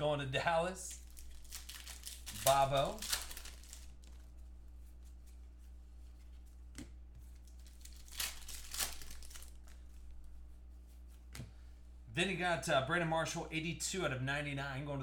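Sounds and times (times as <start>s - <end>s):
faint steady hum: 0.0s - 15.0s
foil wrappers crinkling and tearing: 0.9s - 4.3s, 7.4s - 10.0s.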